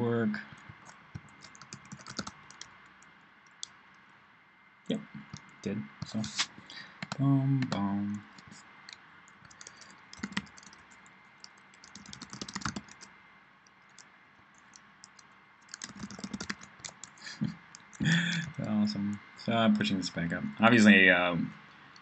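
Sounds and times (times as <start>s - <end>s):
keyboard typing: 0.4s - 3.7s, 5.2s - 13.1s, 13.8s - 19.9s.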